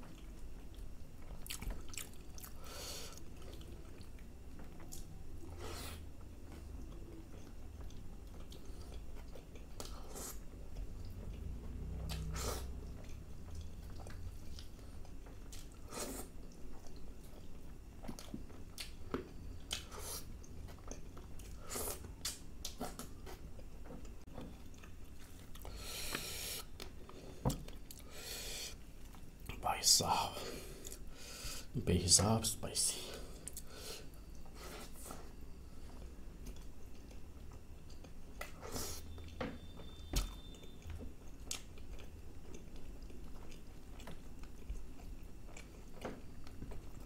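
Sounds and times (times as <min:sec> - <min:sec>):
chewing and wet mouth smacks: 0:00.0 - 0:05.2, 0:06.4 - 0:25.7, 0:35.9 - 0:39.4, 0:40.1 - 0:47.0.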